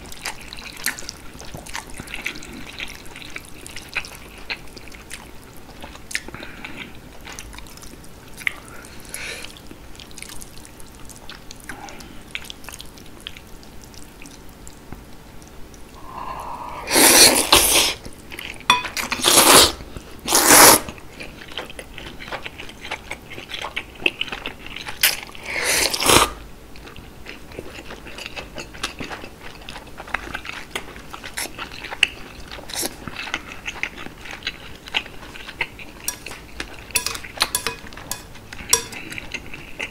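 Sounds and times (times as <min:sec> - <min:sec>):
wet chewing: 0:00.0 - 0:15.9, 0:20.4 - 0:25.4, 0:26.8 - 0:39.9
noodle slurps: 0:16.7 - 0:18.0, 0:19.2 - 0:20.9.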